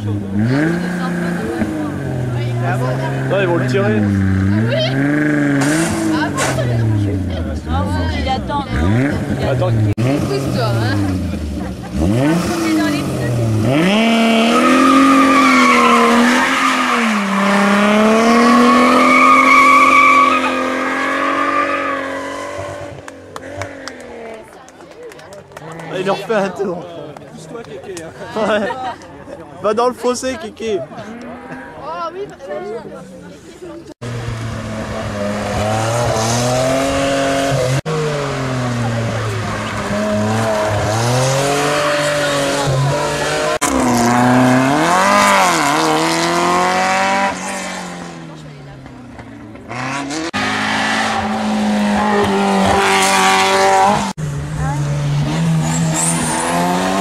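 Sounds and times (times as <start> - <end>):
car engine at high revs: 0.0 - 24.2, 34.0 - 57.0
tyre squeal: 14.4 - 17.8, 18.4 - 22.9.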